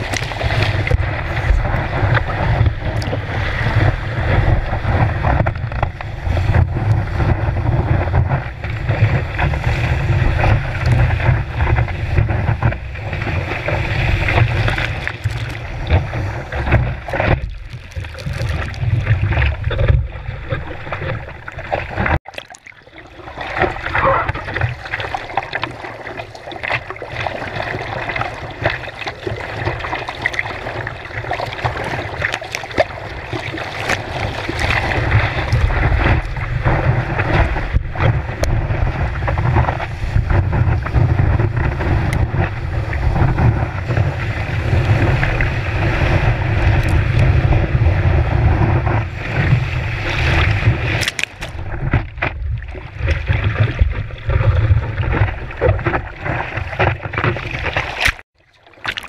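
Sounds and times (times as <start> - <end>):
deep rumble: 0.0 - 22.2, 34.0 - 57.6
wind buffeting microphone: 0.0 - 22.2, 32.8 - 58.2
rushing water: 0.0 - 59.0
water splashes: 0.0 - 59.0.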